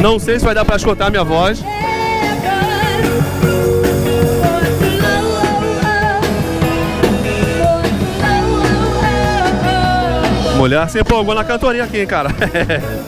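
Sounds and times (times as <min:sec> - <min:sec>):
drums: 0:00.0 - 0:13.0
electric guitar: 0:00.0 - 0:13.0
live rock band playing: 0:00.0 - 0:13.0
woman singing: 0:01.6 - 0:12.0.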